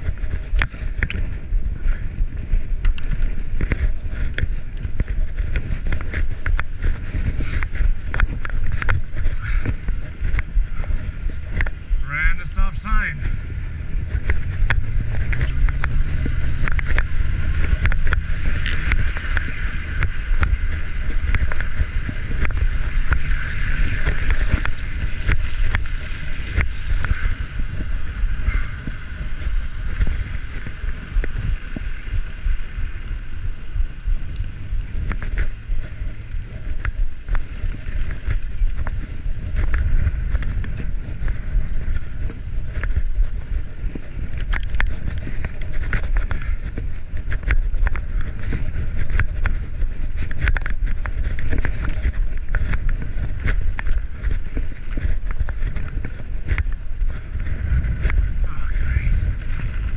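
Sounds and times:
wind buffeting microphone: 0:00.0 - 0:59.9
tyre and road hiss: 0:00.1 - 0:59.9
small clicks and rattles: 0:34.4 - 0:58.3.

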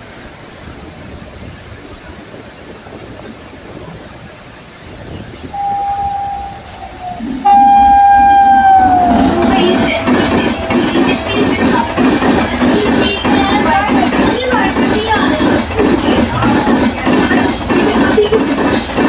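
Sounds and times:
train rumble: 0:00.0 - 0:19.0
train horn blasts: 0:05.5 - 0:17.8.

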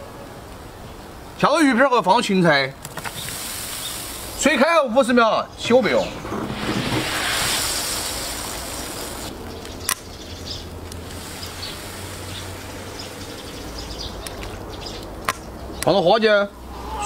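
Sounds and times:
broth streaming and splashing: 0:02.8 - 0:04.9, 0:05.9 - 0:09.5, 0:10.7 - 0:14.6.

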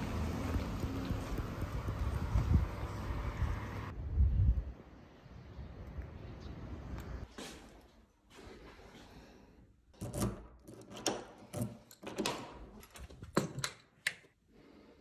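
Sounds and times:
doorknob and latch clicking: 0:10.0 - 0:14.3.

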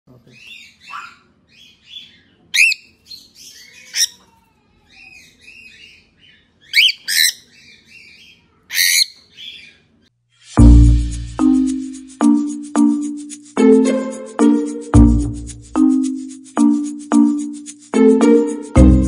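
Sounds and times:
cockatiel chirping: 0:00.4 - 0:04.3, 0:04.9 - 0:09.8
cockatiel squawking: 0:02.6 - 0:04.3, 0:06.7 - 0:07.5, 0:08.7 - 0:09.7.

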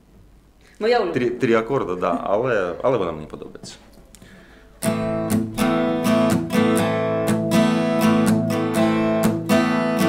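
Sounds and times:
acoustic guitar strumming: 0:04.4 - 0:10.0.

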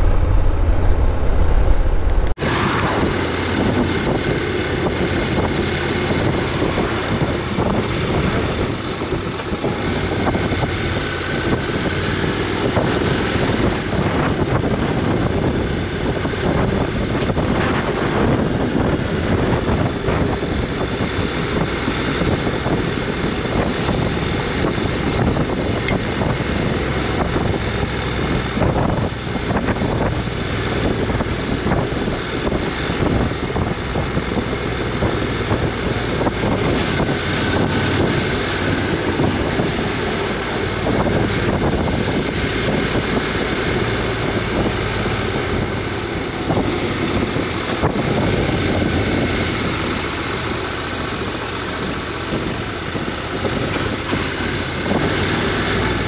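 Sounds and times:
motorcycle engine running: 0:00.0 - 0:02.4, 0:03.1 - 0:56.0
wind rushing over microphone: 0:00.0 - 0:56.0.

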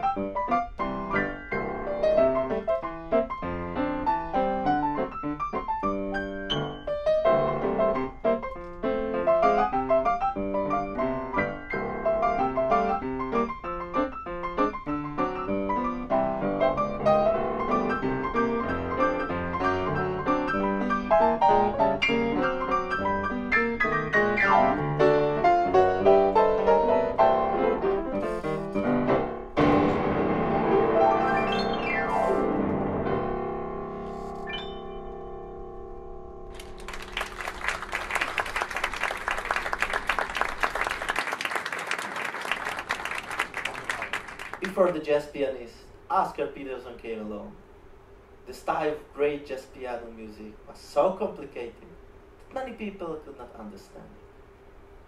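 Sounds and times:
grand piano playing: 0:00.0 - 0:41.2.

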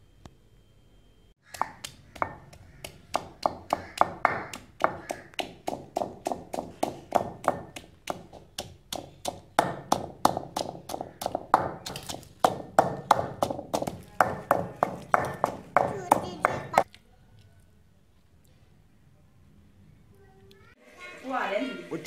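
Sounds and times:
pestle pounding in stone mortar: 0:01.5 - 0:16.9.

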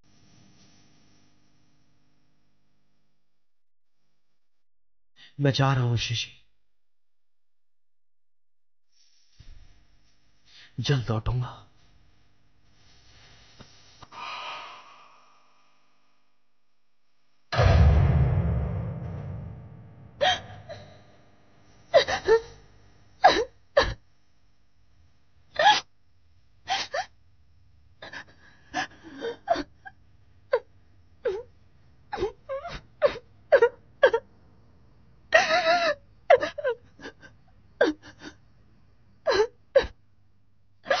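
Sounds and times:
loud ringing hit: 0:17.6 - 0:21.0
woman sobbing: 0:20.2 - 0:20.9, 0:21.9 - 0:22.6, 0:23.2 - 0:24.0, 0:25.6 - 0:25.9, 0:26.7 - 0:27.1, 0:28.0 - 0:29.9, 0:31.3 - 0:31.5, 0:32.1 - 0:34.2, 0:35.3 - 0:38.4, 0:39.3 - 0:40.0.

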